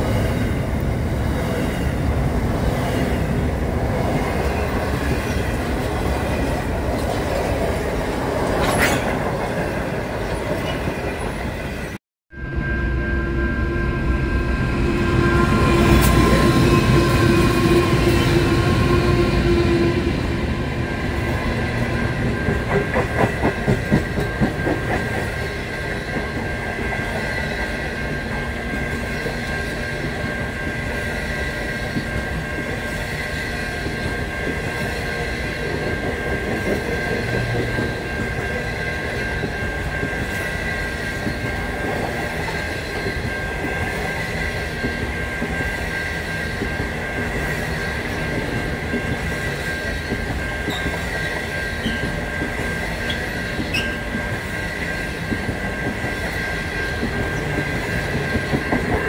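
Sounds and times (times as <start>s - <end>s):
train wheels rumbling on rail: 0.0s - 59.0s
high-pitched whine: 12.4s - 22.8s
rhythmic clickety-clack: 21.2s - 59.0s.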